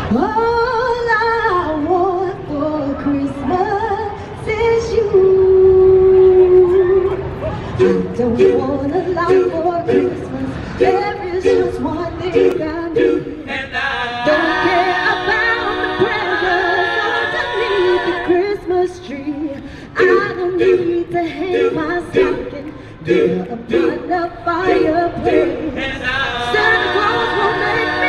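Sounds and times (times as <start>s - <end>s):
a cappella group singing harmony: 5.8s - 28.0s.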